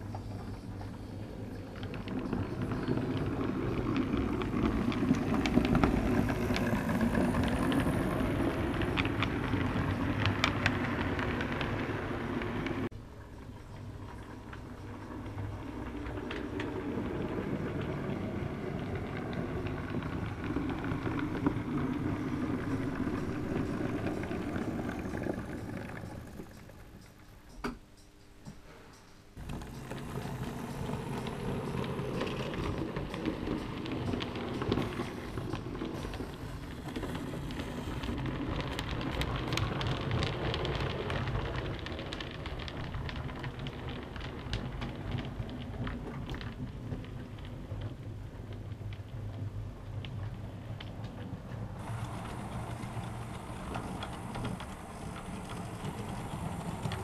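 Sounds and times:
light clicks of train wheels: 0.0s - 12.9s, 28.5s - 57.0s
model train rumbling on track: 0.0s - 12.9s, 13.8s - 27.1s, 29.4s - 57.0s.

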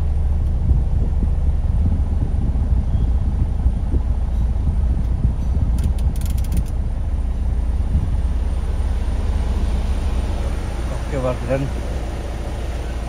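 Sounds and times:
diesel engine idling: 0.0s - 13.0s
quick clicks: 5.8s - 6.8s.

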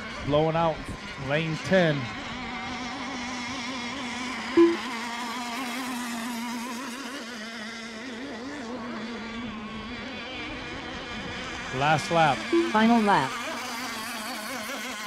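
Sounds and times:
model boat engines buzzing: 0.0s - 15.0s
short loud beep: 4.6s - 4.8s, 12.5s - 13.2s.

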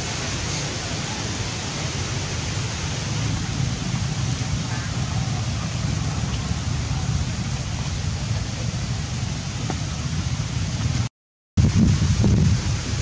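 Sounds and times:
wind buffeting microphone: 2.6s - 13.0s.

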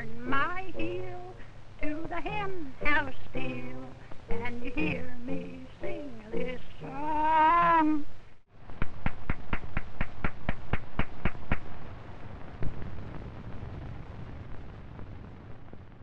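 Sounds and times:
film soundtrack hiss: 0.0s - 16.0s
sharp clicks: 8.8s - 11.7s.

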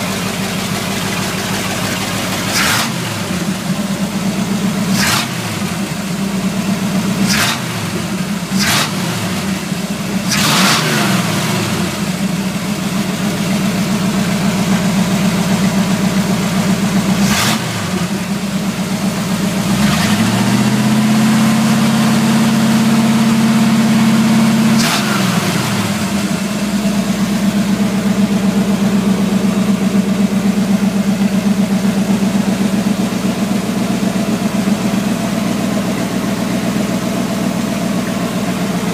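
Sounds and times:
engine idling and revving: 0.0s - 38.9s.

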